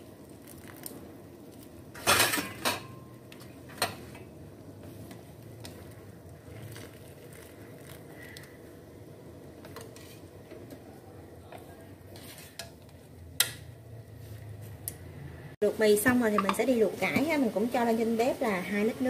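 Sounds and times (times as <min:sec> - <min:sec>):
low hiss from pot: 0:03.8 - 0:12.6.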